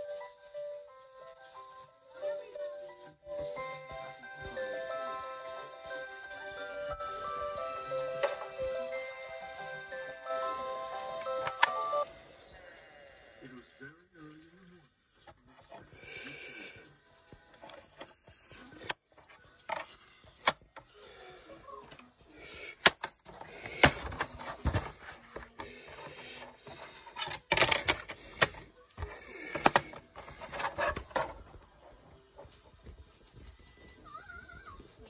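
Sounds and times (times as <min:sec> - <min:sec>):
plastic clicks and clatters: 0:17.6 - 0:20.9, 0:22.8 - 0:31.6.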